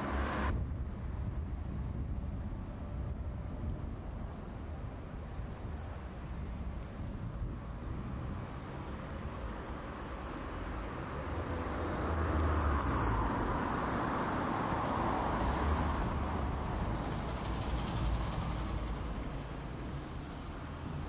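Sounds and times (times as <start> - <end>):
passing vehicle rumbling: 0.0 - 0.6, 8.0 - 21.0.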